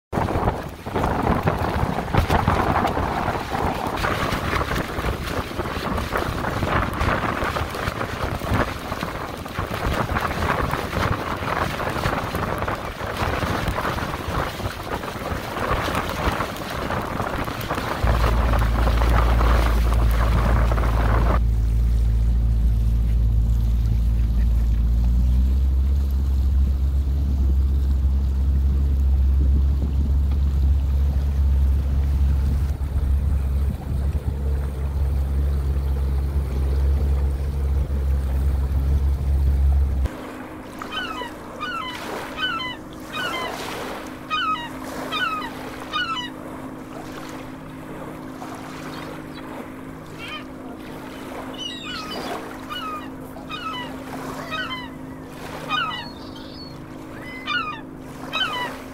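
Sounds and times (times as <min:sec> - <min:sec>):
boat engine rumbling: 0:00.0 - 0:58.9
short bird calls: 0:40.8 - 0:46.4, 0:50.1 - 0:58.9.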